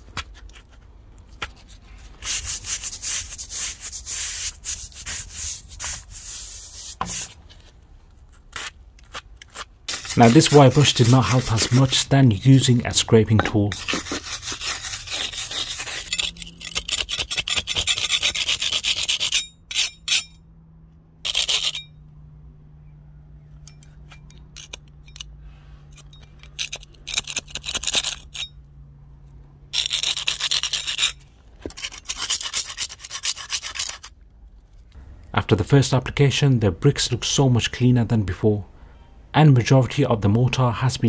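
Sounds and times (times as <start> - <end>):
wire brush scraping mortar: 1.6 - 7.4, 8.4 - 20.3, 29.8 - 34.1.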